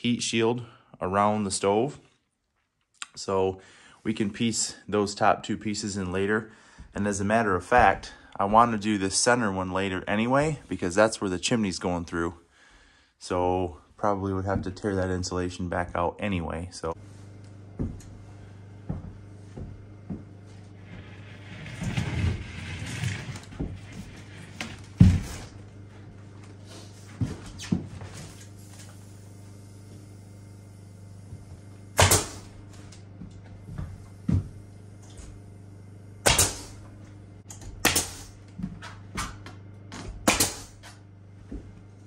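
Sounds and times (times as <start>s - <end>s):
low steady hum: 3.0s - 42.0s
footsteps: 6.8s - 8.8s, 17.0s - 29.0s, 32.5s - 35.4s, 41.4s - 42.0s
boots stepping on plywood floor: 7.7s - 8.7s, 17.6s - 20.8s, 32.6s - 35.4s
nail gun shots with air hiss: 32.0s - 32.5s, 36.2s - 36.8s, 37.8s - 38.4s, 40.2s - 40.9s.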